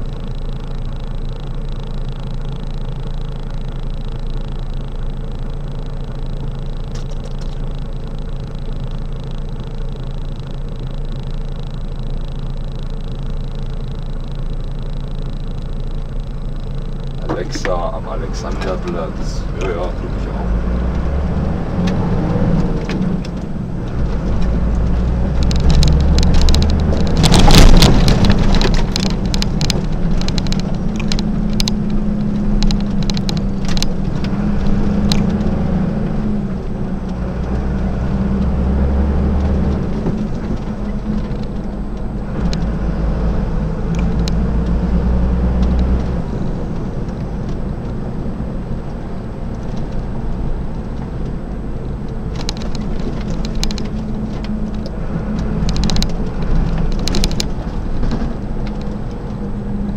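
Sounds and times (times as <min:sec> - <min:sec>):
diesel engine humming: 0:00.0 - 0:59.9
road noise: 0:00.0 - 0:59.9
cab rattles and clicks: 0:21.8 - 0:38.6, 0:45.5 - 0:59.9.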